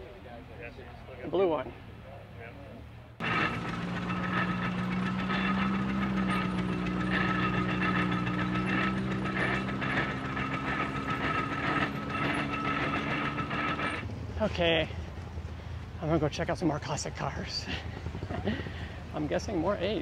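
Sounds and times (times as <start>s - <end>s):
tractor engine drone: 3.0s - 20.0s
clatter of gears: 3.2s - 14.2s.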